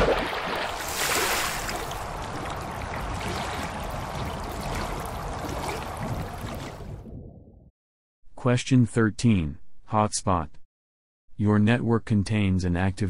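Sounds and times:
running water pouring: 0:00.0 - 0:07.0
water splash: 0:00.0 - 0:07.4.

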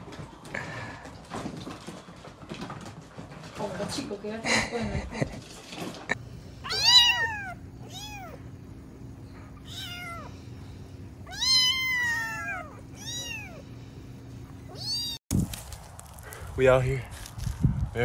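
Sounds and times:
faint steady hum: 0:06.1 - 0:18.0
kittens meowing: 0:06.6 - 0:08.4, 0:09.5 - 0:10.5, 0:11.2 - 0:13.7, 0:14.6 - 0:15.2.

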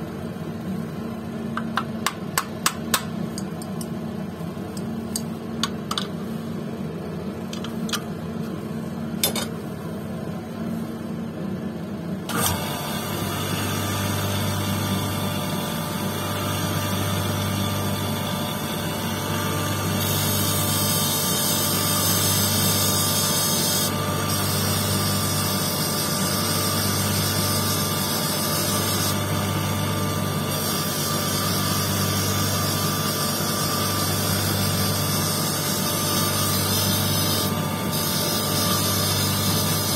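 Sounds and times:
electric motor pulsing hum: 0:12.3 - 0:39.9.

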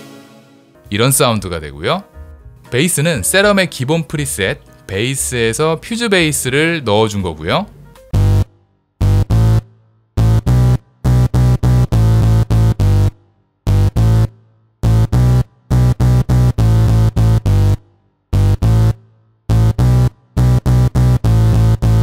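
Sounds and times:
distorted synth bass line: 0:08.1 - 0:22.0.

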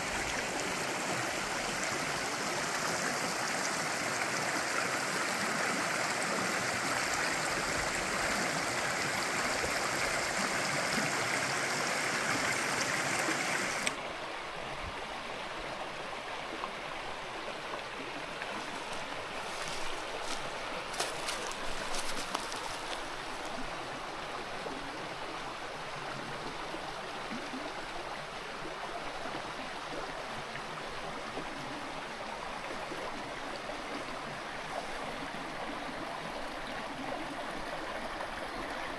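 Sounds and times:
mountain stream rushing: 0:00.0 - 0:26.1.

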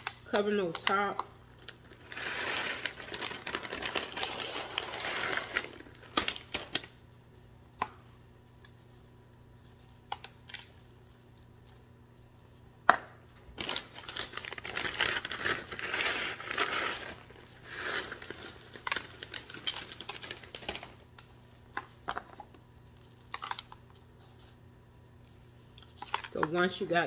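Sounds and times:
plastic bag crinkling: 0:00.0 - 0:07.0, 0:13.5 - 0:21.6.

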